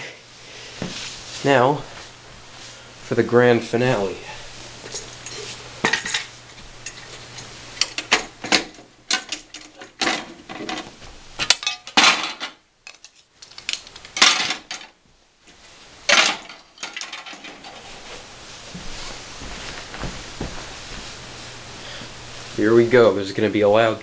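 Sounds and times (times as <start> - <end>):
plastic parts clacking: 11.4 - 14.9.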